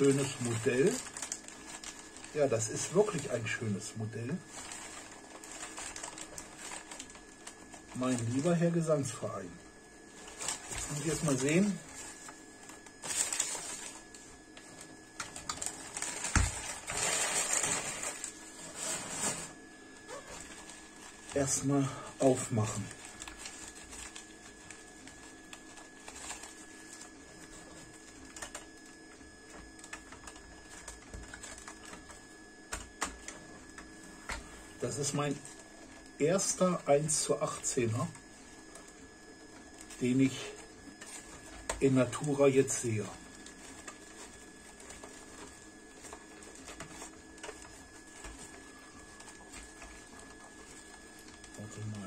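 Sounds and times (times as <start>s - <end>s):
hands handling packaging: 0.0s - 3.6s, 4.3s - 8.9s, 10.0s - 28.8s, 43.2s - 52.0s
newspaper crinkling and rustling: 0.0s - 52.0s.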